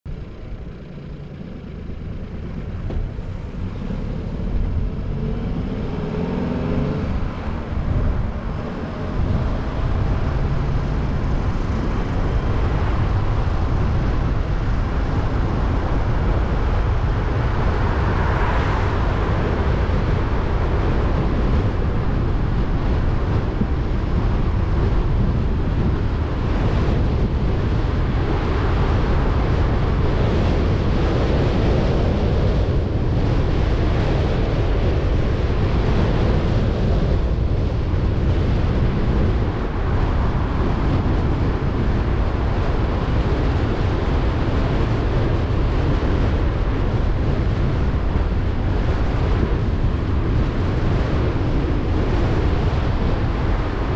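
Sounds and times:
road and wind noise: 0.0s - 53.9s
car engine accelerating: 0.1s - 22.4s.

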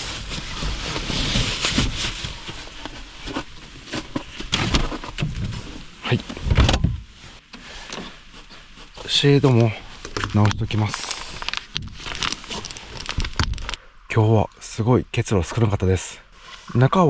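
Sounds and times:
sleeping bag rustling: 0.0s - 6.1s.

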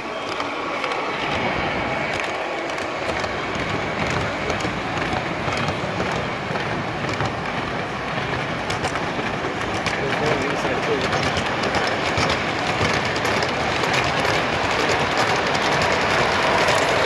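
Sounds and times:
model trains rumbling on track: 0.0s - 17.0s.

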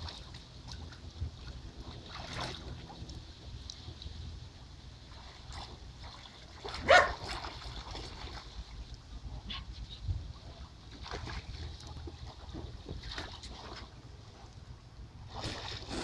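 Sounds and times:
water splashing: 0.0s - 4.2s, 5.0s - 14.5s, 15.2s - 16.0s
wind on microphone: 9.3s - 10.6s.

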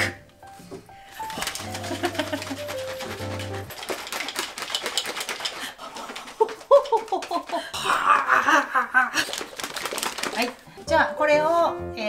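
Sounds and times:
shaker bottle rattling: 1.2s - 7.7s, 9.1s - 10.8s.

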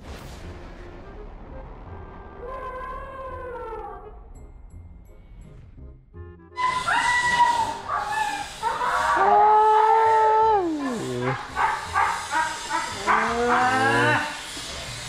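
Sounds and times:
elephant calling: 6.6s - 14.6s.

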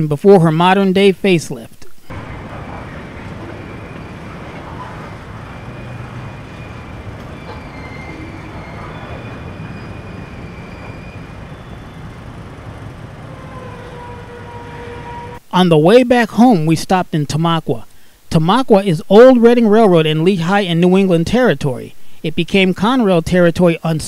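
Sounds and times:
freight train wheels rumbling on rail: 2.1s - 15.4s.

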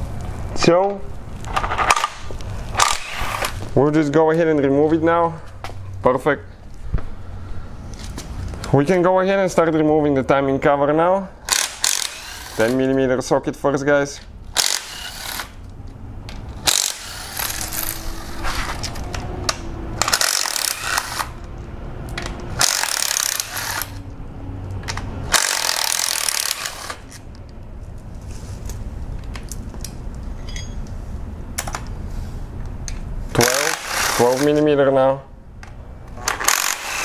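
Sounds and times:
cordless ratchet spinning bolts: 11.5s - 12.8s, 14.5s - 15.5s, 16.6s - 18.0s, 20.0s - 21.4s, 22.6s - 24.0s, 25.3s - 27.0s, 33.4s - 34.6s, 36.2s - 37.0s
metal bolts clinking: 30.4s - 30.9s.

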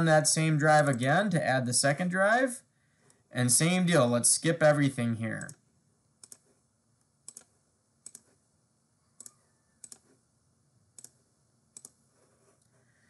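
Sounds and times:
computer mouse clicks: 5.4s - 5.6s, 6.2s - 8.4s, 9.2s - 10.2s, 10.9s - 12.7s.

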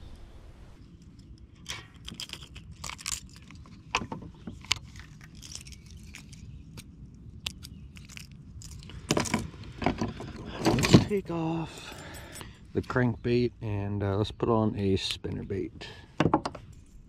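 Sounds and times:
fishing tackle clicks and rattles: 1.0s - 11.2s.

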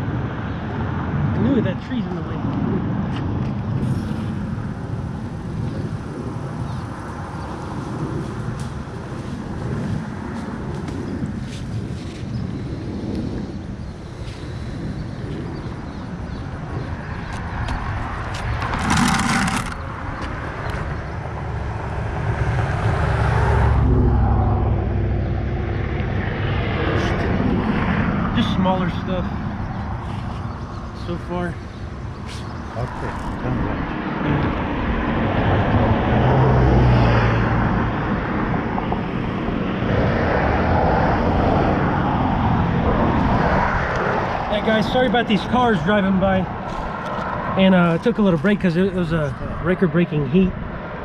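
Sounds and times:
cars driving past: 0.0s - 51.0s
strong low hum: 18.5s - 36.1s
car driving past: 21.5s - 30.8s.

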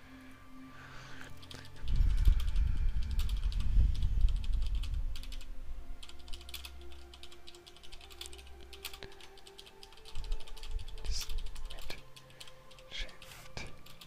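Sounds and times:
low rumble: 1.8s - 6.4s.

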